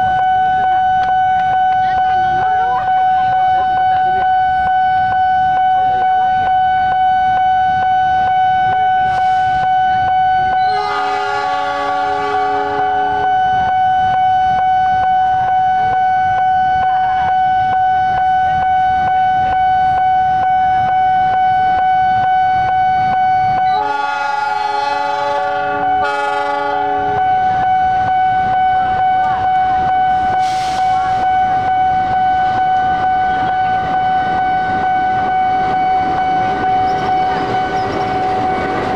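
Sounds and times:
level-crossing warning tone: 0.0 - 38.9
locomotive horn chord: 10.4 - 14.0, 23.6 - 28.3.

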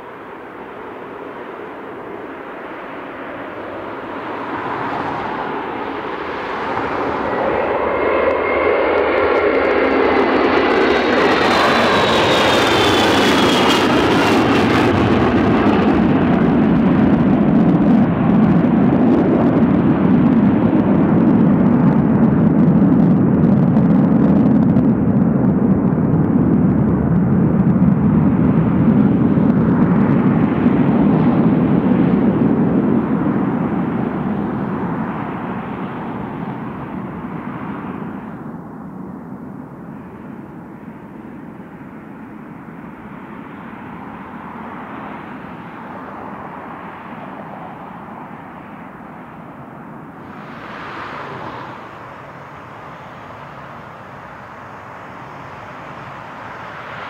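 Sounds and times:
jet aircraft taking off: 0.0 - 57.0
jet engine high whine: 0.0 - 57.0.

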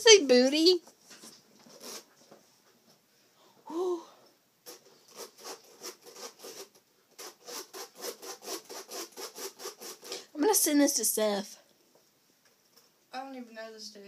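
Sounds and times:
rubbing strokes on hard surface: 1.6 - 2.2, 4.7 - 10.3.

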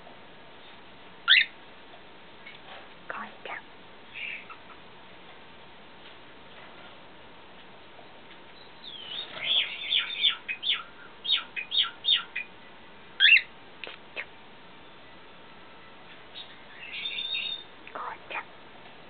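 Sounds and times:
cockatiel chirping: 1.3 - 1.5, 8.6 - 12.5, 13.2 - 13.5, 16.4 - 18.1.

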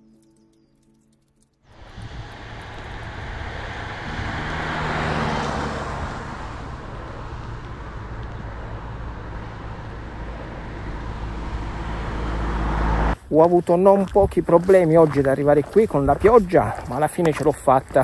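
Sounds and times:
low road rumble: 0.0 - 18.0
car passing on wet road: 1.7 - 13.2.

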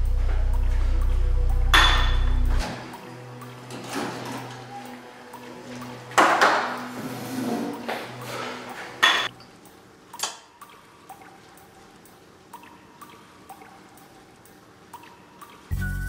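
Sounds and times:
soft music: 0.0 - 16.0
glass clink: 1.7 - 2.4, 9.0 - 9.5.

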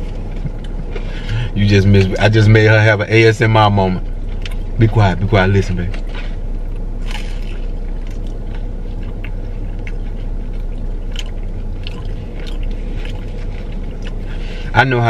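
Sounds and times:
chewing fried food: 0.0 - 2.3, 4.0 - 4.8, 5.4 - 14.7
low hum: 0.0 - 15.0
wet mouth clicks and smacks: 7.0 - 14.2.

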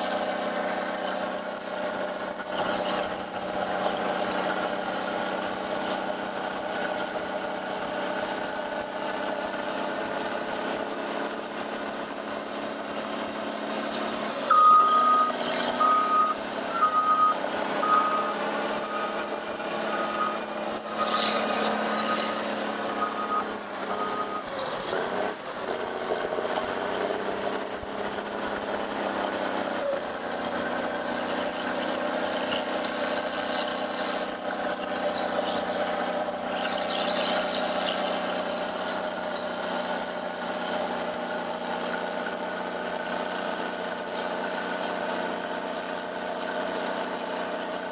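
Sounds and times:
heavy diesel engines running: 0.0 - 47.9
reversing alarm beeping: 14.5 - 21.2, 21.9 - 24.6.

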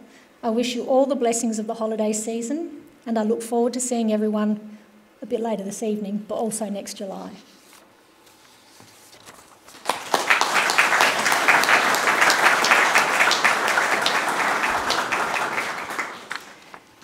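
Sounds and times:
audience applauding: 9.7 - 16.8.

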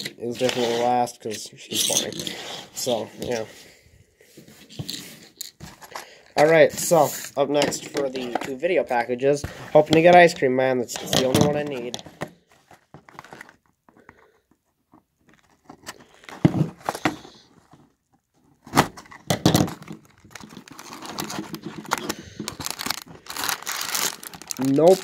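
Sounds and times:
cardboard rustling and crinkling: 2.0 - 3.6, 4.4 - 13.9, 14.6 - 25.0
cardboard tearing: 19.8 - 25.0.

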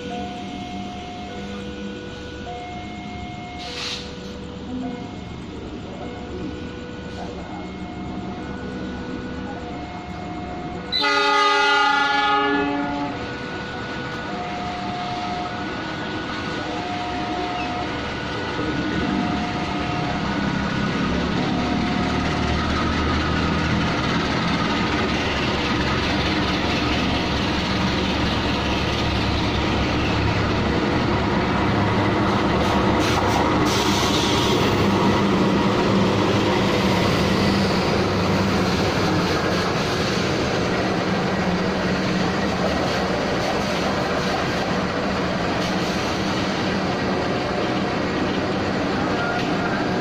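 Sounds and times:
train rumbling past: 0.0 - 50.0
train horn blasts: 10.8 - 13.5.

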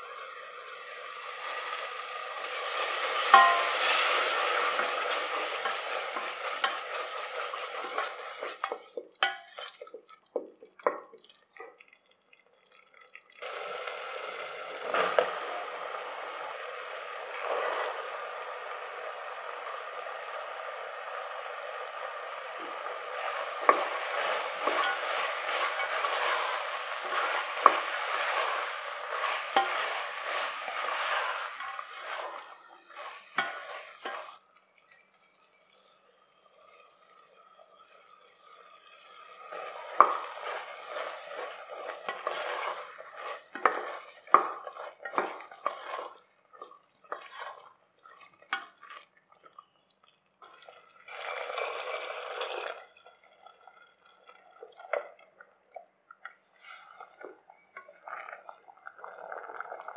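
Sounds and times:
vegetables sizzling in a pot: 0.0 - 11.6, 13.4 - 49.8, 50.4 - 55.1, 56.4 - 59.9
water pouring into pot: 0.0 - 59.9
wooden spatula scraping: 2.7 - 10.5, 22.6 - 34.4, 39.5 - 49.0, 56.6 - 57.4
steel cup and spoon clinking: 3.3 - 4.2, 7.8 - 9.9, 23.6 - 27.9.

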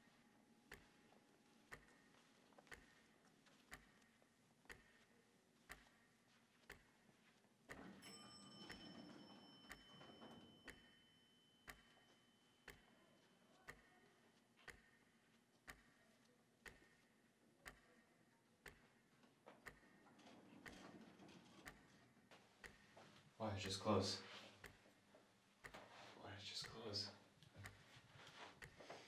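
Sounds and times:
clock ticking: 0.0 - 29.0
elevator chime: 7.9 - 13.1.

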